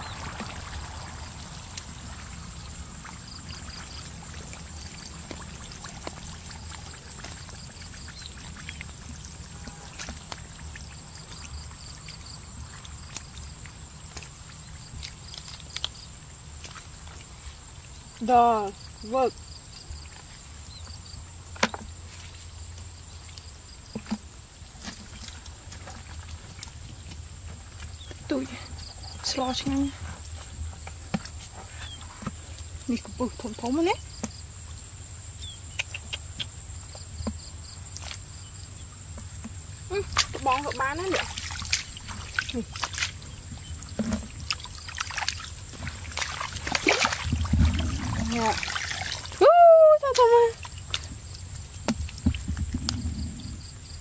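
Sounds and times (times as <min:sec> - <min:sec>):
insects trilling: 0:00.0 - 0:54.0
hands splashing in muddy water: 0:39.9 - 0:52.5.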